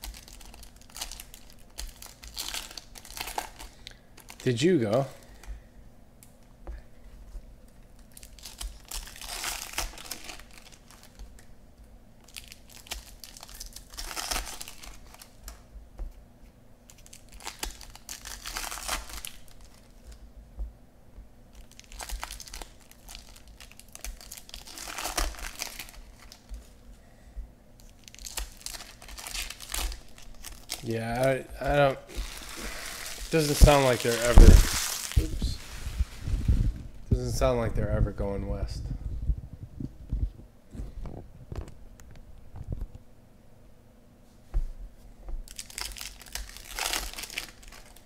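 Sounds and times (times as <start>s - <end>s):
card pack wrappers tearing: 0.0s - 4.6s, 8.1s - 11.2s, 12.2s - 15.6s, 16.9s - 19.9s, 21.5s - 26.5s, 27.8s - 31.3s, 32.1s - 36.0s, 45.5s - 48.0s
wrappers crinkling: 0.0s - 5.3s, 8.0s - 11.4s, 12.2s - 15.6s, 16.9s - 20.2s, 21.5s - 26.8s, 27.8s - 31.3s, 32.1s - 36.6s, 45.5s - 48.0s.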